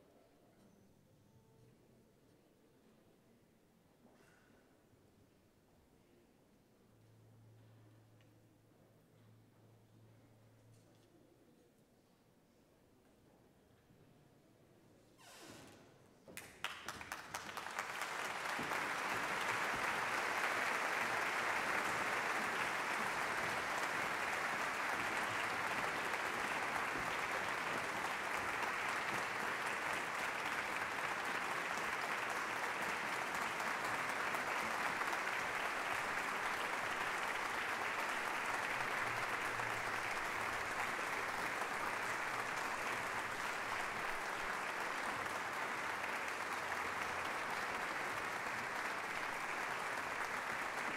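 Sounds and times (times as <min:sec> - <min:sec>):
audience applauding: 0:16.4 - 0:50.9.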